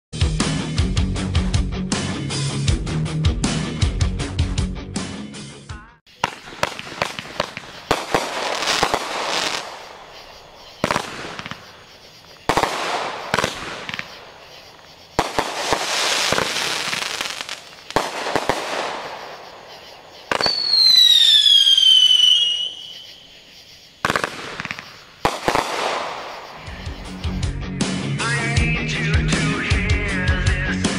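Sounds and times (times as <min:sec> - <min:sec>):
crackling firework bursts: 0:06.1 - 0:27.2
firework launch thumps: 0:06.2 - 0:19.4, 0:24.0 - 0:26.3.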